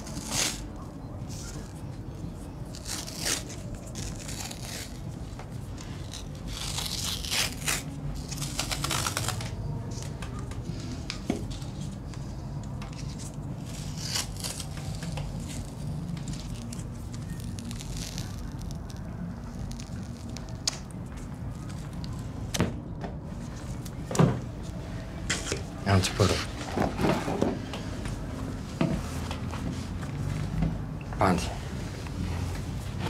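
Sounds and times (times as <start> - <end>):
adhesive tape ripping: 0.0 - 0.8, 2.7 - 9.6, 13.0 - 21.0.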